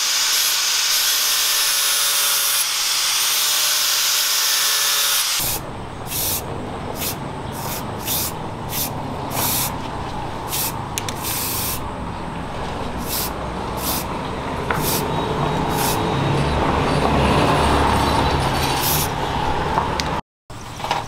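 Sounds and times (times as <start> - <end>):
aerosol spray can hissing: 5.4 - 6.4, 7.0 - 9.8, 10.5 - 11.8, 13.0 - 14.1, 14.8 - 15.0, 15.7 - 16.0, 18.8 - 19.1
steady low rumble: 5.4 - 17.0.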